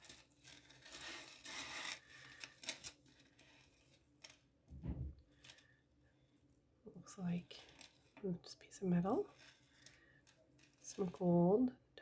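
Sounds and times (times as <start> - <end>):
metal chains clinking and rustling: 0.0 - 4.3
low thump: 4.7 - 5.2.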